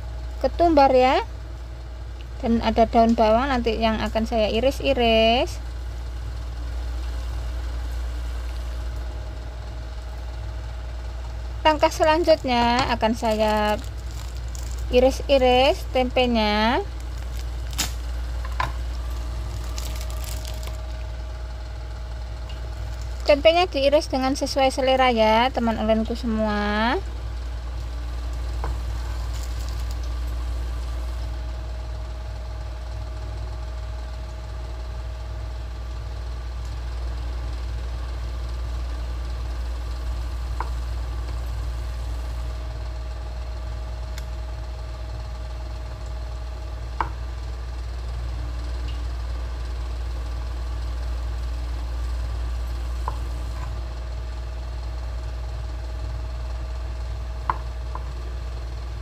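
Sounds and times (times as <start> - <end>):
low background hum: 0.0 - 59.0
knife slicing: 17.0 - 18.1.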